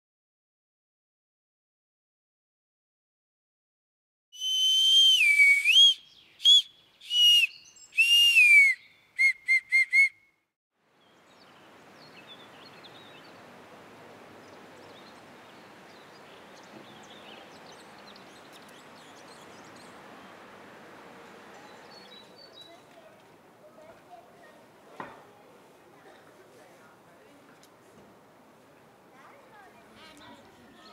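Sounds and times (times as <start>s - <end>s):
faint outdoor hiss: 4.4s - 10.1s, 10.8s - 30.9s
bark whistle blown: 4.4s - 10.3s.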